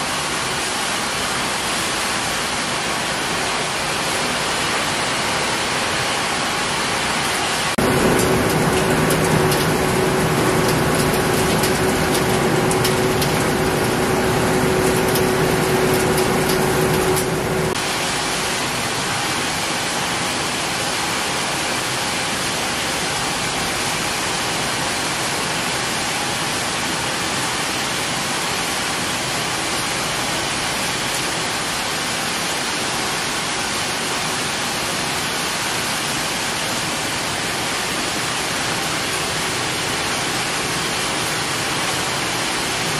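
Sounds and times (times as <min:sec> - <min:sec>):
machinery humming with crackling: 0:00.1 - 0:42.9
steady rushing noise: 0:02.0 - 0:21.0.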